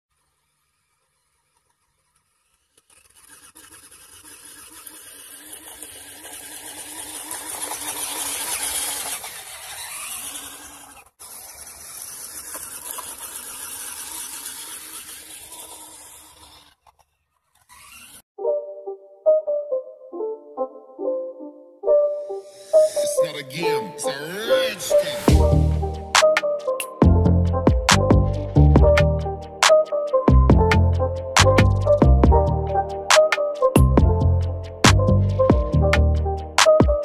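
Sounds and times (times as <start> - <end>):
electric motor whine: 0.2 - 16.7
music: 18.4 - 37.0.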